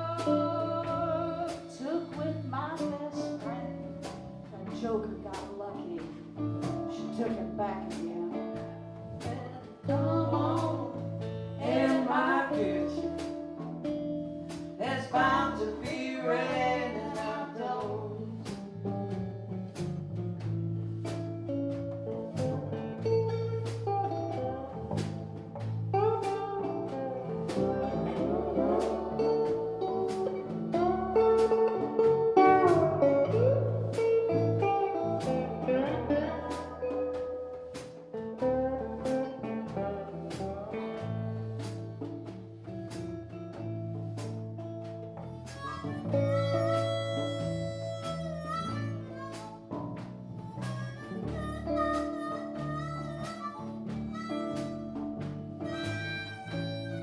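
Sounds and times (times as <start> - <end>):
drum kit beat: 0.0 - 57.0
electric bass: 0.0 - 57.0
resonator guitar slide lead: 0.0 - 57.0
harmonica: 45.2 - 57.0.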